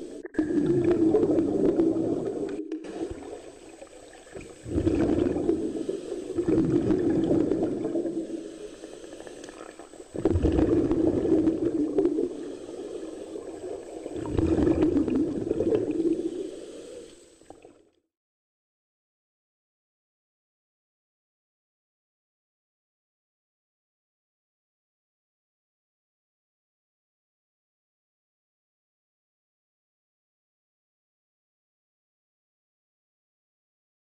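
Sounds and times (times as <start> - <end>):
underwater exhaust bubbles burbling: 0.0 - 16.8.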